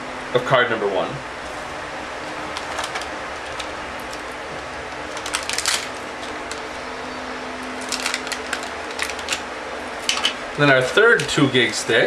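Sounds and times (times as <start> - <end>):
steady low hum: 0.0 - 12.0
plastic packaging crinkling: 1.4 - 6.9, 7.6 - 11.4.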